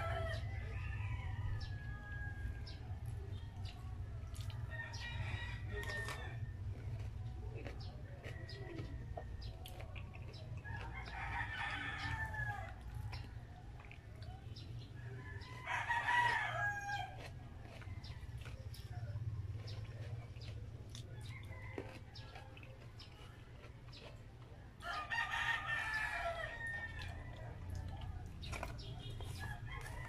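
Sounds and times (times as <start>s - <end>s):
rooster crowing: 0.0s - 2.8s, 10.8s - 13.0s, 15.3s - 17.3s, 24.8s - 27.8s, 29.3s - 30.0s
low steady hum: 0.0s - 30.0s.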